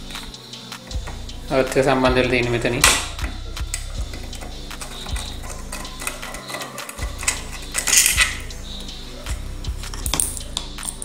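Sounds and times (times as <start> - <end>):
screwdriver clicks and scrapes: 3.8 - 8.5
screwdriver rasp: 3.8 - 8.5.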